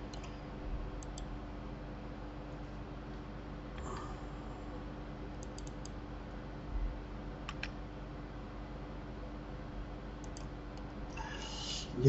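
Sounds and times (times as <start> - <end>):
low room hum: 0.0 - 12.0
mouse and keyboard clicks: 5.4 - 6.0, 7.5 - 7.8.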